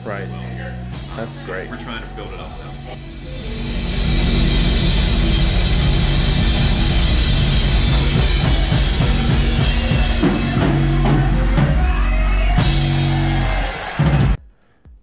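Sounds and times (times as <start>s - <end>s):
rock band playing live: 3.4s - 14.4s.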